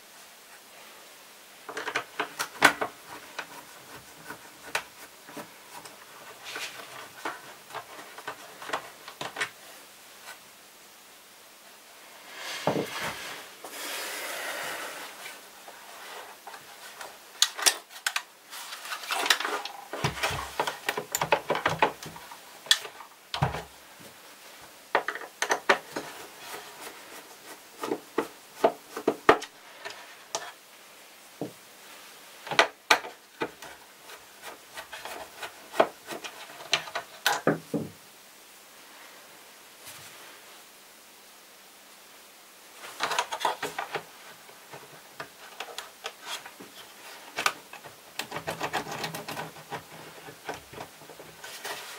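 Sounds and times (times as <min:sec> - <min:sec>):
plastic scraping slide: 0:12.2 - 0:17.1.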